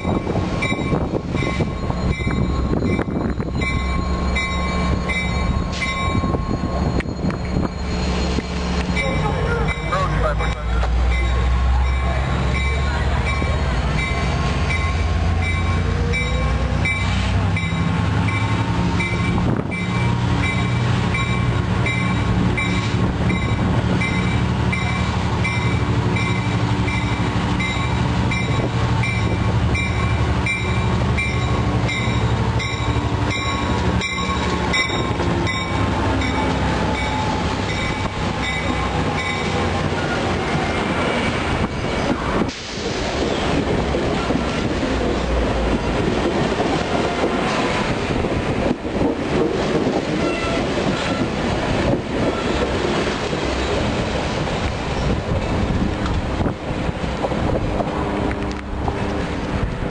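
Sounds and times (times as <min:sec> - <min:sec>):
diesel locomotive running: 0:00.0 - 0:59.9
high bell striking: 0:00.6 - 0:08.2.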